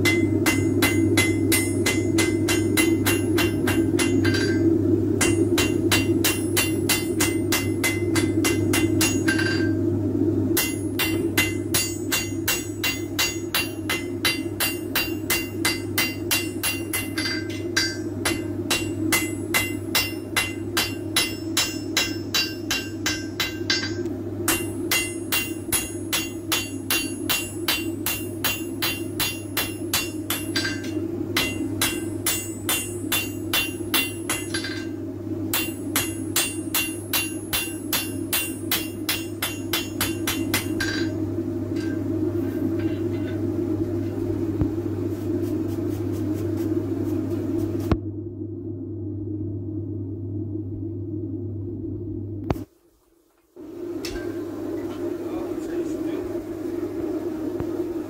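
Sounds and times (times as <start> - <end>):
hammer ringing on anvil: 0.0 - 9.8, 10.6 - 34.9, 35.5 - 41.2
steady low hum: 0.0 - 58.0.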